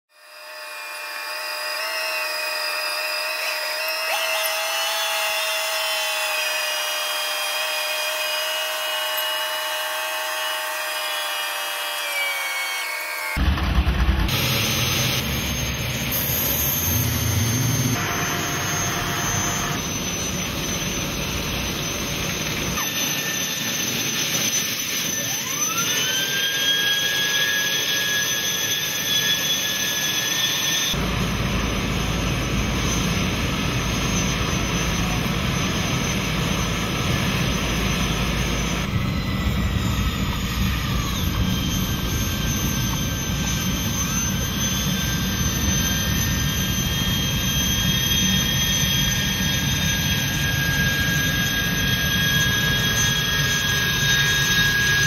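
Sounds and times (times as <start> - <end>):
turbine whine spooling up: 0.1 - 55.0
gas turbine boat engines: 13.1 - 55.0.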